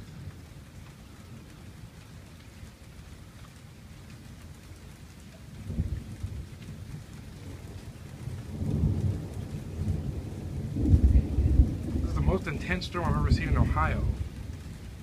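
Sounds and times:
steady rain: 0.0 - 15.0
thunder rumbling: 5.6 - 15.0.

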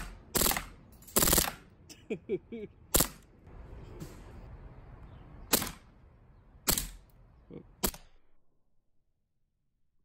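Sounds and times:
airsoft pistol shots: 0.0 - 1.7, 5.5 - 5.9.

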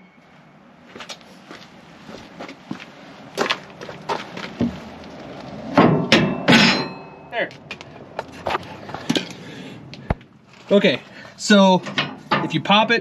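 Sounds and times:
metal-on-metal knocks and bangs: 5.7 - 7.2, 11.8 - 12.5.

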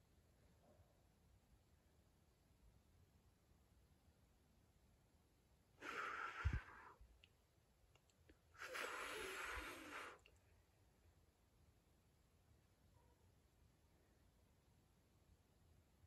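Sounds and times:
cat hissing: 5.8 - 7.0, 8.6 - 10.3.

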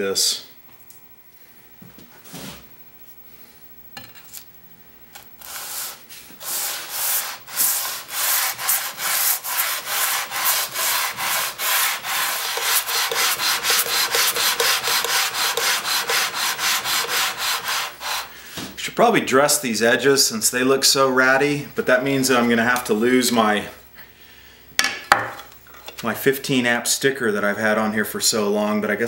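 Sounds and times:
plane sole scraping on abrasive paper: 5.4 - 18.3.

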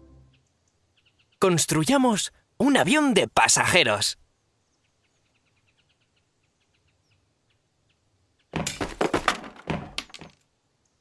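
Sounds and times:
faint bird chirps: 0.0 - 1.6, 4.2 - 8.6
parts clattering onto ground: 8.6 - 10.4.

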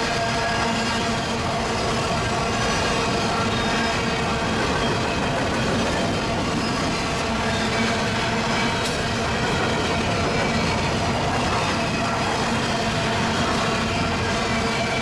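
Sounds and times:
freight train wheels rolling: 0.0 - 15.0.

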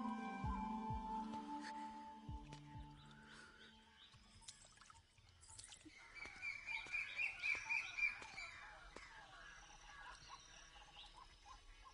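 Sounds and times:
birds chirping: 0.0 - 4.6
faint outdoor background: 0.0 - 11.9.

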